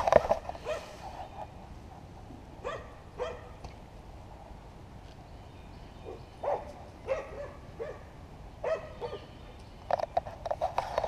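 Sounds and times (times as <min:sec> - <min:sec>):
dog barking: 0:00.6 - 0:01.0, 0:02.6 - 0:03.6, 0:06.1 - 0:09.3.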